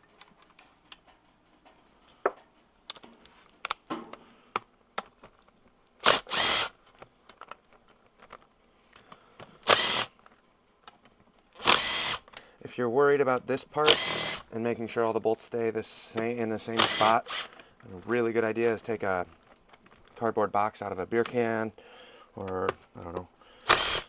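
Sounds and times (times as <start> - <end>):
power drill whining: 6.0 - 6.7, 9.6 - 10.1, 11.5 - 12.2, 13.8 - 14.4, 16.8 - 17.6, 23.6 - 24.0.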